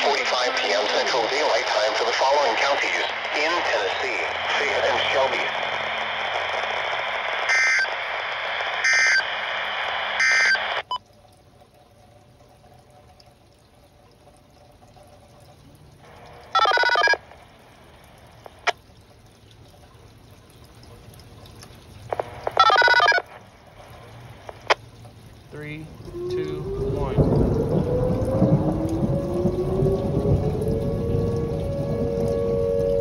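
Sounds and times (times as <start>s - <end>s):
buzzy radio tone bursts: 0.0s - 10.8s, 22.1s - 24.8s
radio hiss from speaker: 0.0s - 10.9s, 16.0s - 18.8s, 22.1s - 24.8s.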